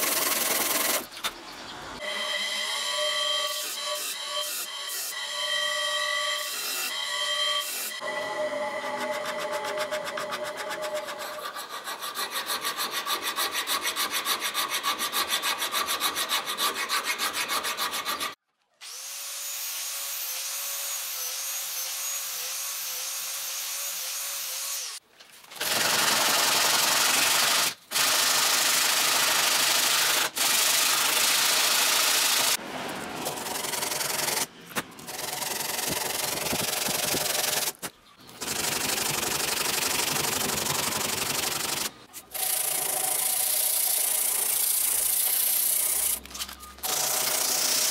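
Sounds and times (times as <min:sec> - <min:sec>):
angle grinder grinding wood: 0:02.0 - 0:19.1
hand file rasping on wood: 0:09.1 - 0:18.4.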